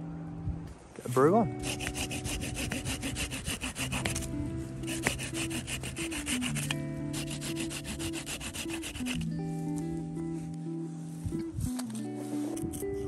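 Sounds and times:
saw cutting firewood: 1.6 - 9.3.

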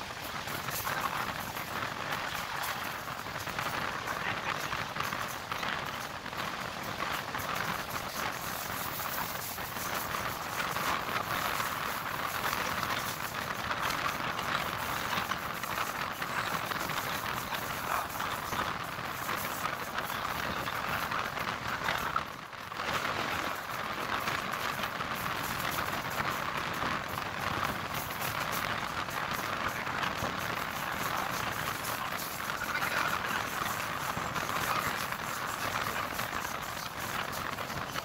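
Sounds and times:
train wheels rushing on rails: 0.0 - 38.0.

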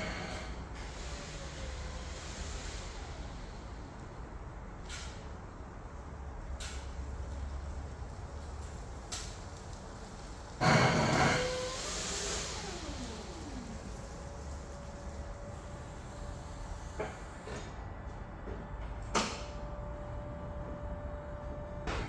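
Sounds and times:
forklift engine rumbling: 0.0 - 17.6
burst of hiss: 10.6 - 14.2
falling whine: 10.6 - 16.5.

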